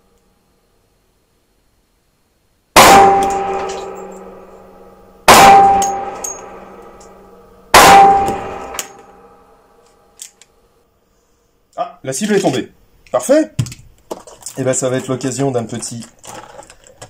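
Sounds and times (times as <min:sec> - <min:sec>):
pistol shots ringing: 0:02.8 - 0:09.3.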